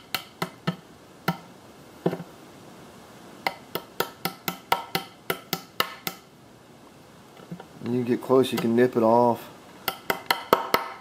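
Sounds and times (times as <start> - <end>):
pliers tapping wooden skewer: 0.0 - 1.5, 3.4 - 6.3, 8.5 - 8.8, 9.8 - 11.0.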